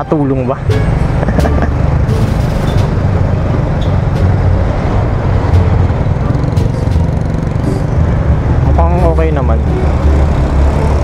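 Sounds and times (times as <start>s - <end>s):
road noise: 0.0s - 11.0s
scooter engine running: 0.8s - 8.7s.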